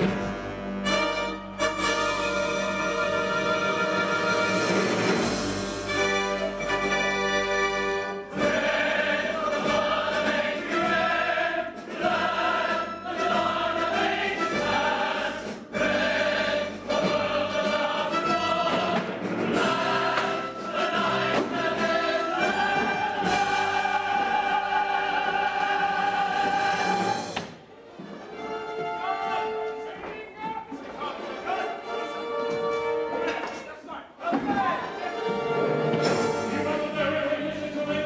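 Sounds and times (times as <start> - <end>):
pit orchestra playing: 0.0 - 30.0, 31.0 - 33.5, 34.6 - 38.0
ensemble singing in chorus: 7.2 - 27.6, 34.2 - 38.0.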